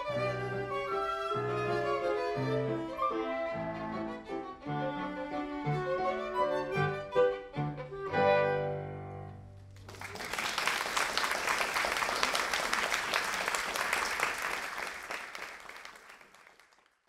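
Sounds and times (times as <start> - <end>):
violin and ensemble chord: 0.0 - 9.4
audience applauding: 9.7 - 17.0.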